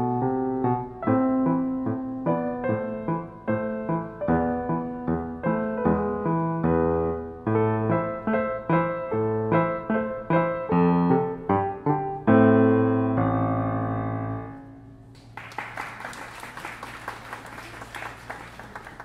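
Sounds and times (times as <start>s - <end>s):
grand piano playing: 0.0s - 15.1s
applause: 15.1s - 19.0s.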